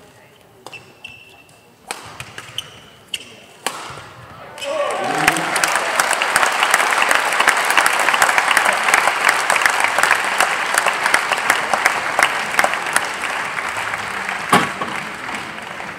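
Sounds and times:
spectators applauding: 0:04.7 - 0:15.9.

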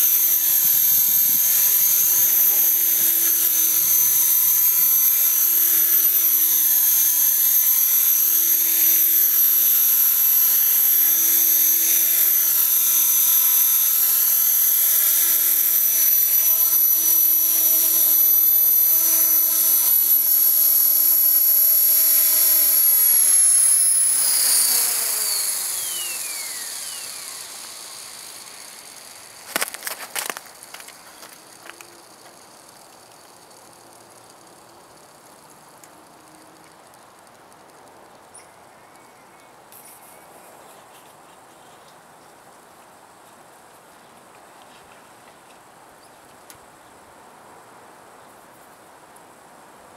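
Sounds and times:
rotor buzz: 0:00.0 - 0:38.0
sharp clicks: 0:00.0 - 0:38.2
rc helicopter motor whine: 0:00.0 - 0:40.4.

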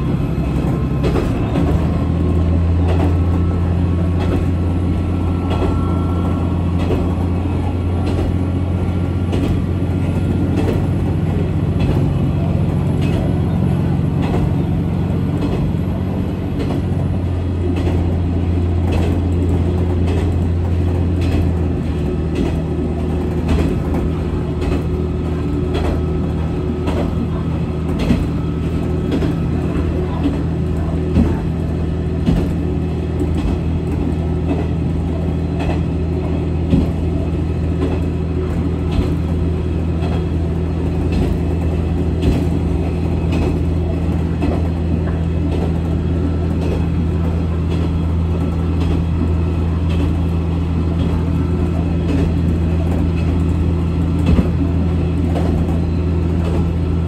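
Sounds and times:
diesel engine drone: 0:00.0 - 0:57.0.

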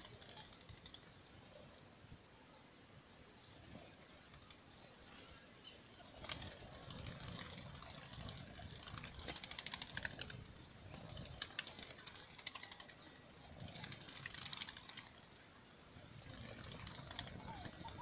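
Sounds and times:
dove wings flapping: 0:00.0 - 0:01.2, 0:06.0 - 0:15.4, 0:16.1 - 0:18.0.

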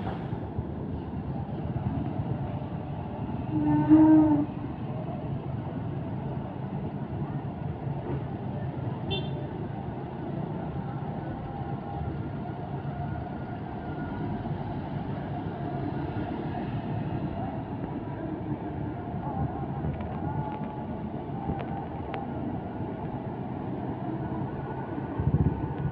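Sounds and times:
bus diesel engines: 0:00.0 - 0:25.9.

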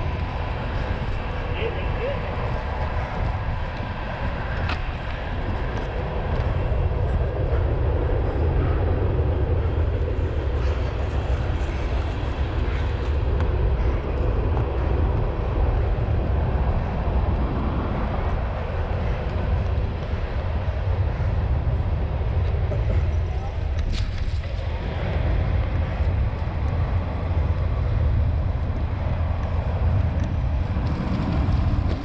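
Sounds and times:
bike drivetrain running: 0:00.0 - 0:32.0
bike tyres on wet grass and mud: 0:00.0 - 0:32.0
wind rumble on microphone: 0:00.0 - 0:32.0.

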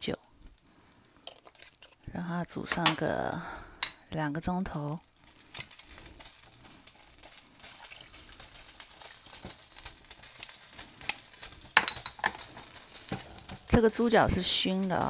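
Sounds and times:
water sizzling in a pot: 0:04.7 - 0:15.0
liquid pouring: 0:05.0 - 0:15.0.

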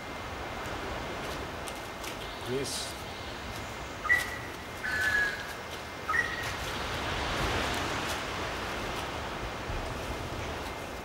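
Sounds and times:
bird whistling calls: 0:04.0 - 0:05.5, 0:06.1 - 0:06.5.

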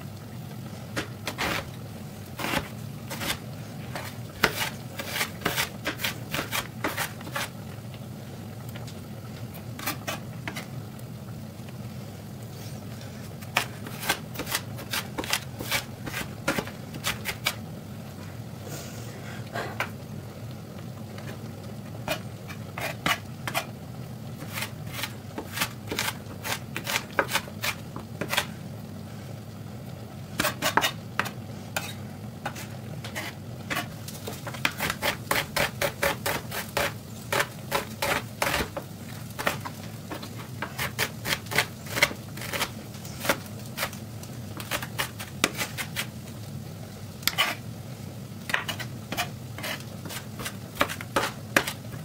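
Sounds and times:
knife chopping on cutting board: 0:04.4 - 0:07.5, 0:13.5 - 0:17.6, 0:24.4 - 0:28.5, 0:30.4 - 0:31.9, 0:33.1 - 0:38.8, 0:48.5 - 0:52.0.

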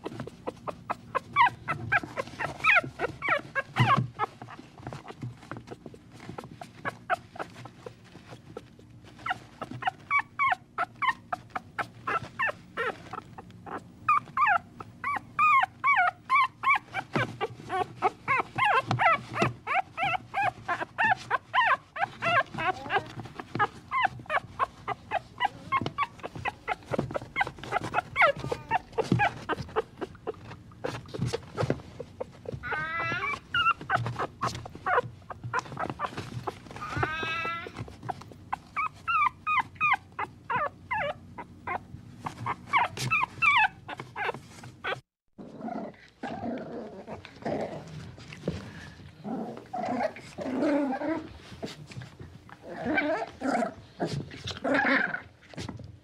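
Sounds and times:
dog whining: 0:00.0 - 0:45.1, 0:49.2 - 0:51.9, 0:52.5 - 0:55.4
dog yipping: 0:00.2 - 0:05.2, 0:09.2 - 0:31.7, 0:32.4 - 0:45.0.

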